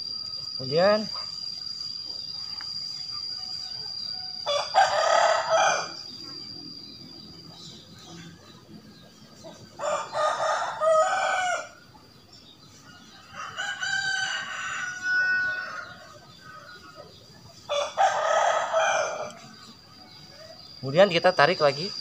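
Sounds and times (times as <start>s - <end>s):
rooster crowing: 3.5s - 6.8s, 9.4s - 11.9s, 12.8s - 20.8s.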